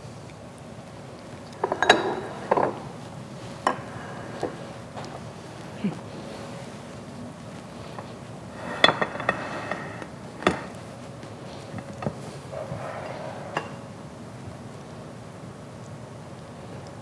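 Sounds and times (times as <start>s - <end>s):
plates and cutlery clinking: 1.6s - 3.0s, 3.6s - 5.1s, 7.9s - 10.8s, 11.6s - 13.9s.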